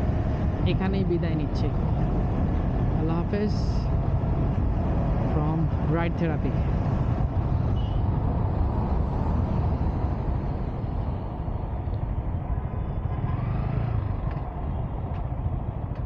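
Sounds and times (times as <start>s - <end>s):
vehicle engine and road noise: 0.0s - 16.0s.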